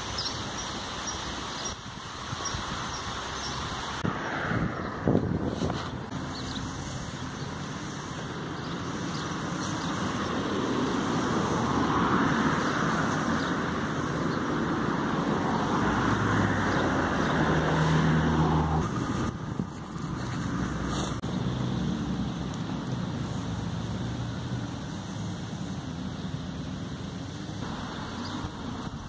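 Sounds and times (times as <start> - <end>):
tyre noise of passing vehicles: 0.0 - 29.0
low engine hum: 2.8 - 29.0.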